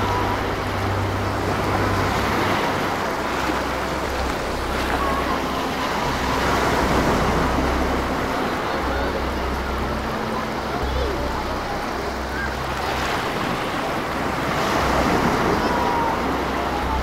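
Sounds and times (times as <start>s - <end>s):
ocean surf breaking on beach: 0.0s - 17.0s.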